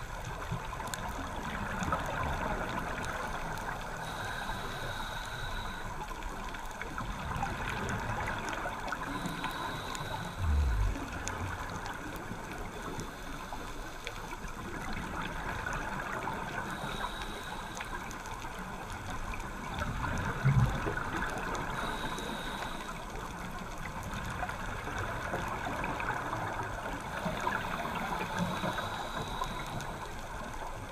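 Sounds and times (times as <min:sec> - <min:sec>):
watery underwater hiss: 0:01.4 - 0:30.9
diver's exhaled bubbles: 0:10.3 - 0:11.8.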